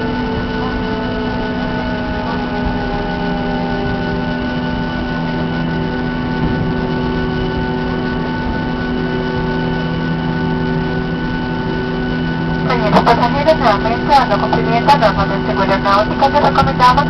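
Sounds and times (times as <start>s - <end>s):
airliner engines humming in cabin: 0.0s - 17.0s.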